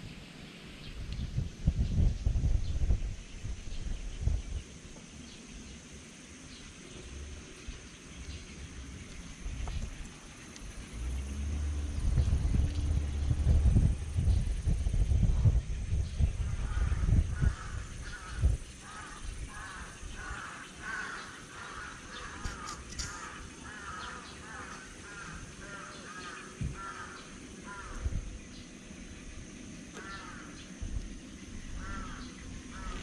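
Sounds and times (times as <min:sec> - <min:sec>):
soft low thumps: 0:11.9 - 0:18.6.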